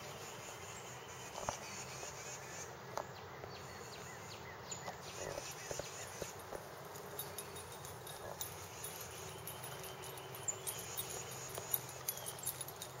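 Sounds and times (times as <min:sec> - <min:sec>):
insects chirring: 0:05.1 - 0:13.0.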